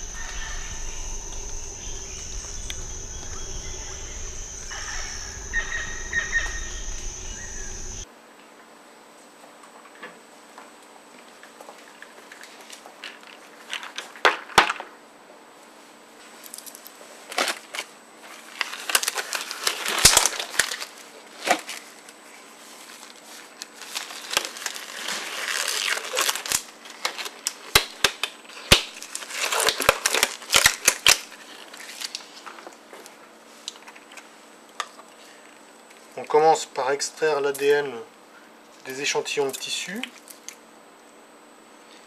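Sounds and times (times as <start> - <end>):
lab gloves crinkling and snapping: 17.3 - 22.0, 23.0 - 32.6.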